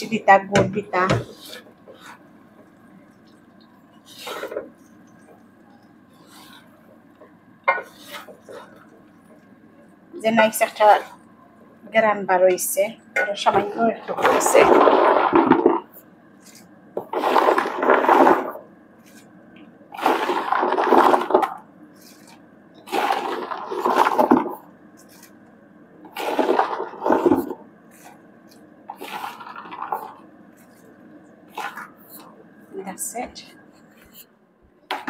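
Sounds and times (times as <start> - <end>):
wooden spatula scraping pan: 0.7 - 2.3, 4.0 - 4.9, 6.1 - 6.8, 7.7 - 9.0, 13.3 - 19.3, 20.0 - 25.4, 26.1 - 28.2, 28.9 - 30.8.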